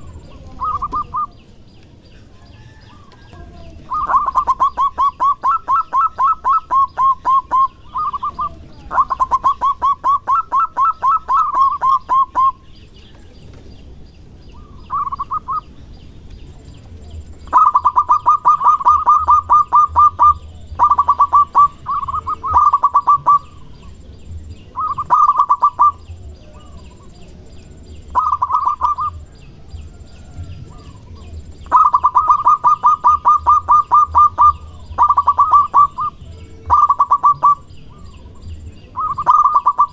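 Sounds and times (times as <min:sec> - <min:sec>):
dove cooing: 0:00.0 - 0:01.6, 0:02.2 - 0:13.6, 0:14.5 - 0:39.9.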